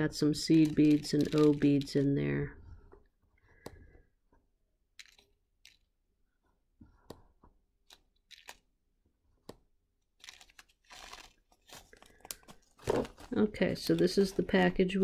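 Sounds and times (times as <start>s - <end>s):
package crinkling: 0.4s - 2.2s, 7.9s - 8.6s, 10.2s - 15.0s.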